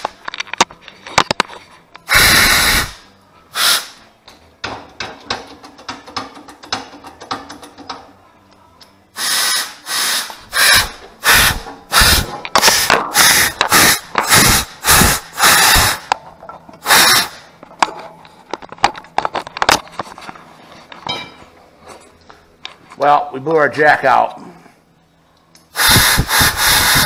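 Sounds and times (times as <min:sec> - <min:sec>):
hydraulic jack pumping strokes: 0:02.1 - 0:03.0, 0:09.2 - 0:16.1, 0:16.8 - 0:17.4, 0:25.8 - 0:27.0.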